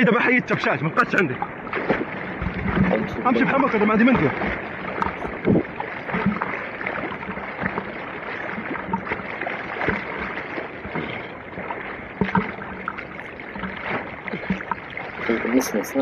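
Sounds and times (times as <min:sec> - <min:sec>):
swimming stroke splashes: 0:00.0 - 0:16.0
water sloshing and splashing: 0:00.0 - 0:16.0.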